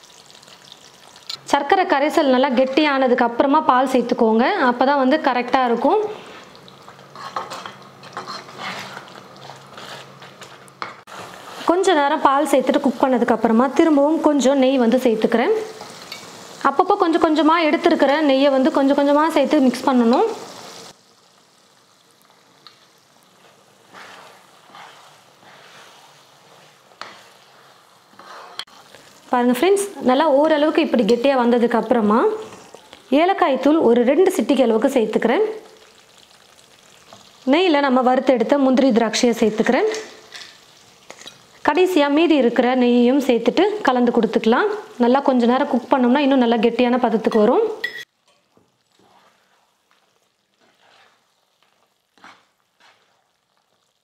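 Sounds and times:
spoon scraping sizzling pan: 0:05.4 - 0:54.0
spoon scraping pan: 0:06.1 - 0:12.0, 0:15.6 - 0:16.4, 0:22.6 - 0:29.2, 0:47.2 - 0:49.8, 0:50.6 - 0:51.3, 0:52.1 - 0:53.3.

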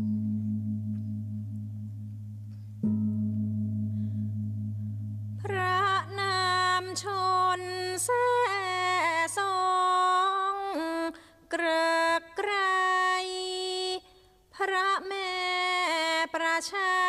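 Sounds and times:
low hum: 0:00.0 - 0:09.3
woman singing unaccompanied: 0:05.4 - 0:17.0.

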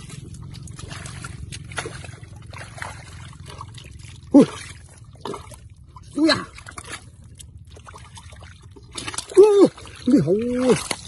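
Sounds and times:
hands squelching through wet mud: 0:00.0 - 0:11.0
small water splashes: 0:00.0 - 0:11.0.

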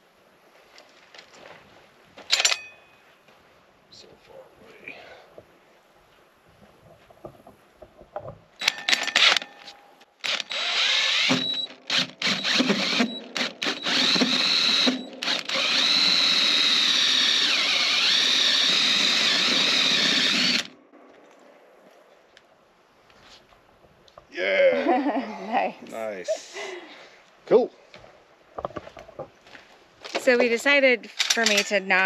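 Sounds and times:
drill cutting through plastic: 0:10.2 - 0:20.7.

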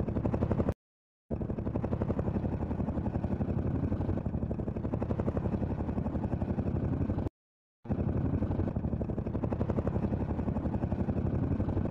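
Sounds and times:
helicopter rotor chop: 0:00.0 - 0:07.3, 0:07.9 - 0:11.9.

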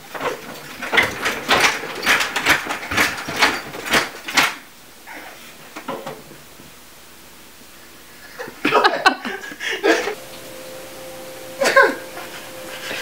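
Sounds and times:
person stifled laughter: 0:08.3 - 0:10.2.

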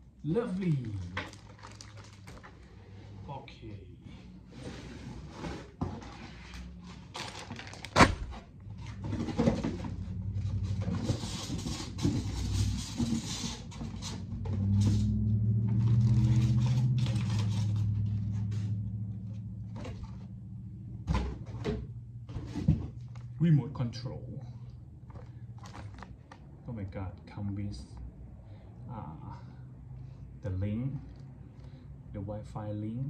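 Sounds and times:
packaging scraping and rustling: 0:00.5 - 0:02.9, 0:04.4 - 0:15.1, 0:15.7 - 0:18.8, 0:25.0 - 0:26.4
low hum: 0:14.1 - 0:23.4.

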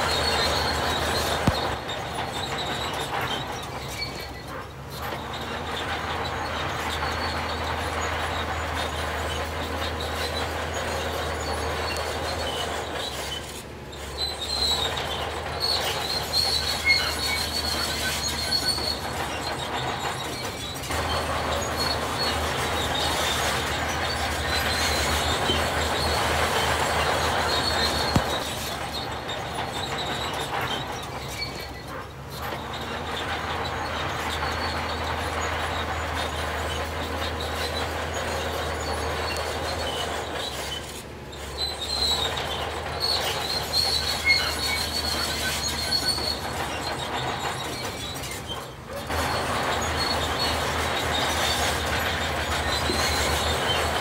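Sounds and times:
dense metal clanking: 0:00.0 - 0:54.0
diesel engine running: 0:00.0 - 0:54.0
metal-on-metal squeals: 0:00.0 - 0:54.0.

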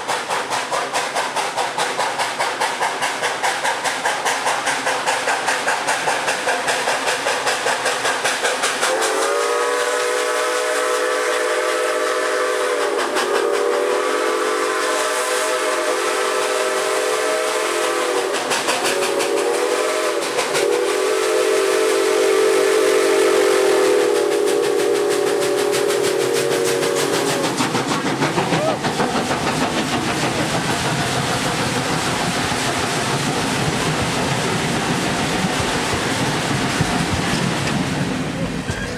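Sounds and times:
steam locomotive exhaust beat: 0:00.0 - 0:38.9
steam whistle blasts: 0:08.8 - 0:27.4.

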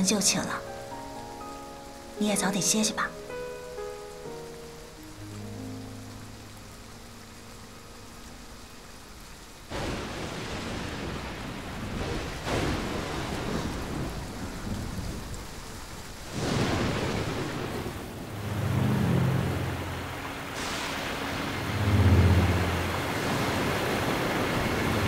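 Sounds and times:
heavy rain: 0:00.0 - 0:25.0
thunder rumbling: 0:09.7 - 0:25.0.

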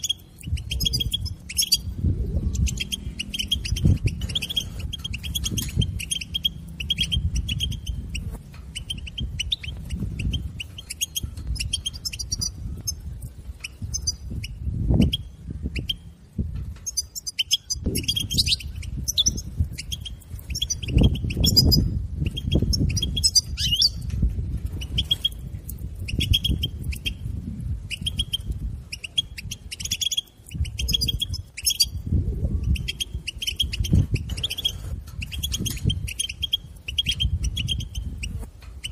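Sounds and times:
goldfinch twittering: 0:00.0 - 0:16.1, 0:16.8 - 0:24.1, 0:24.8 - 0:27.3, 0:27.9 - 0:38.9
low rumble: 0:00.2 - 0:16.8.

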